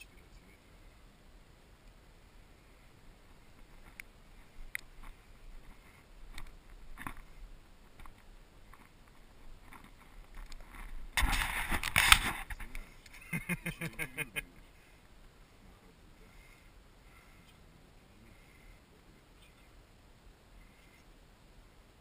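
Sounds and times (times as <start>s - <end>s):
rubbing on microphone: 2.7s - 13.0s.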